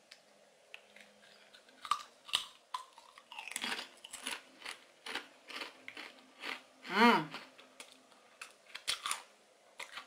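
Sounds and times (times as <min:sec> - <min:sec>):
chewing crunching chip: 0:00.8 - 0:06.7, 0:07.3 - 0:10.0
tortilla chip snapping: 0:01.6 - 0:06.6, 0:07.8 - 0:10.0.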